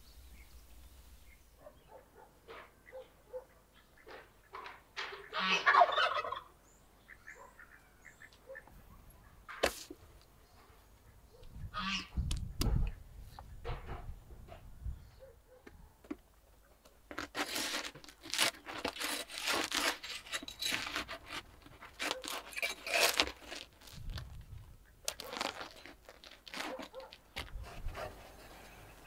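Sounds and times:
metal scraping bread off clay: 17.1 - 24.4, 25.1 - 28.6.

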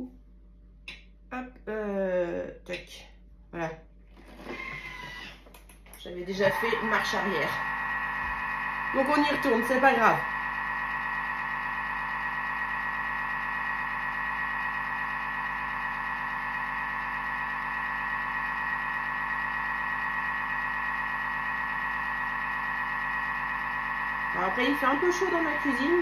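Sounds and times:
kitchen mixer motor whining: 4.2 - 26.0.

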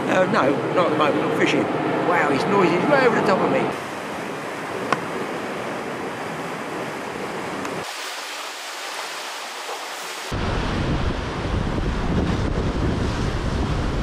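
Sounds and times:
sea noise: 0.0 - 14.0
wind: 0.0 - 14.0
wind buffeting microphone: 9.8 - 14.0.

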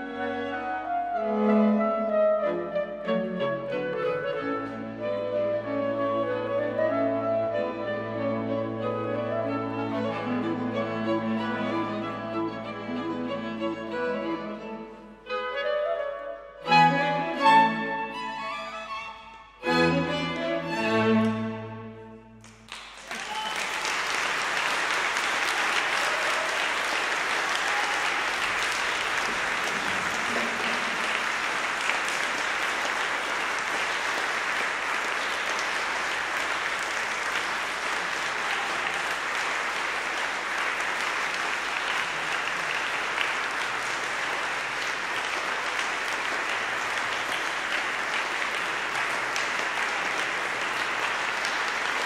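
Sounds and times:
audience applauding: 22.4 - 52.0.

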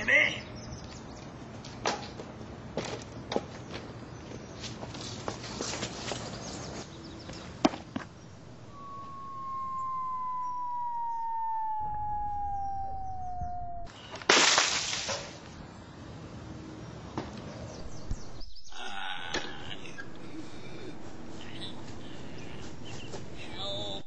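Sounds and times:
falling whistle-like tone: 8.6 - 13.9.

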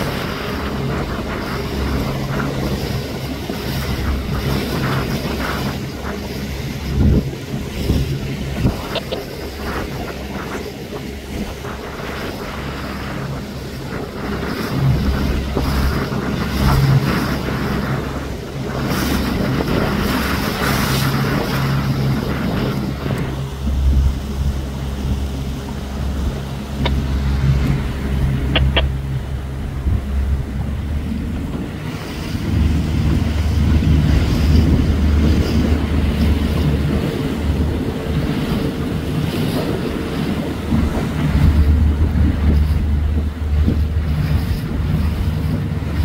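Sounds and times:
outboard engine running: 0.0 - 46.0
wind buffeting microphone: 0.0 - 46.0
sharp clicks: 28.4 - 28.9.

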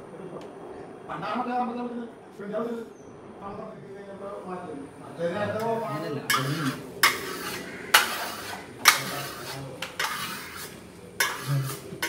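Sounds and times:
metal trowel scraping wall: 5.9 - 12.0.

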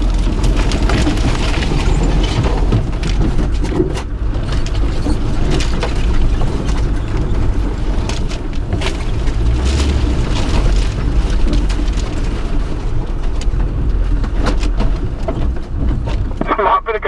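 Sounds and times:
vehicle engine low rumble: 0.0 - 17.0
branches scraping vehicle body: 7.7 - 16.3.

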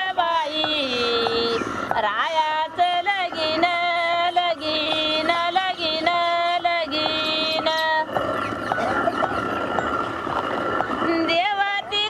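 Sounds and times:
woman singing slow melody: 0.0 - 8.1, 11.0 - 12.0.

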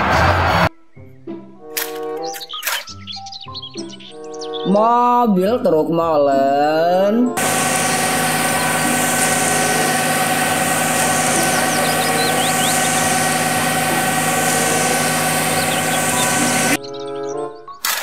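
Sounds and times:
concrete pouring down chute: 7.4 - 16.8
diesel truck engine running: 7.4 - 16.8.

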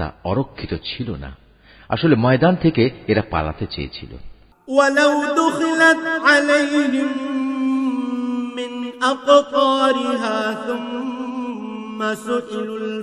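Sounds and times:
man chanting recitation: 2.0 - 13.0.

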